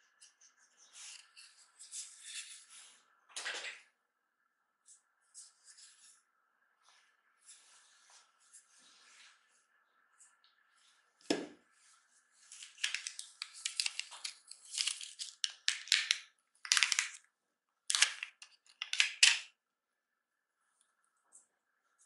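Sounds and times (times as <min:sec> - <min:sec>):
plastic bag crinkling: 0:12.5 - 0:17.2.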